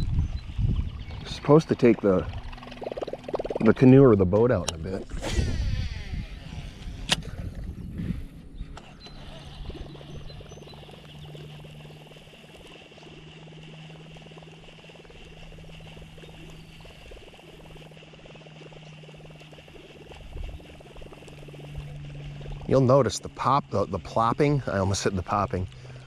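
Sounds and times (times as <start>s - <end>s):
fishing reel whirring: 1.2s - 26.0s.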